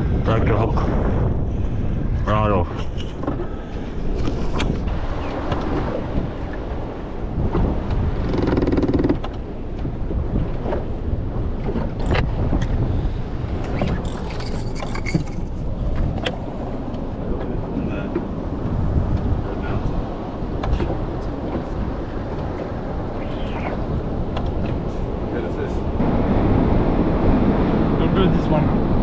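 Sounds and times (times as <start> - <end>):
water noise: 0.0 - 29.0
wind buffeting microphone: 0.0 - 29.0.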